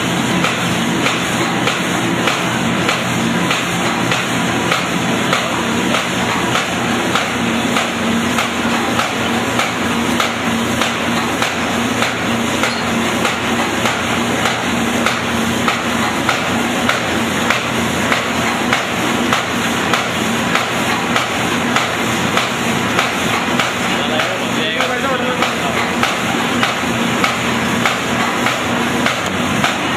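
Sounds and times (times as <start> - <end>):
machine clattering and humming: 0.0 - 29.9
regular rollers knocking: 0.4 - 29.9.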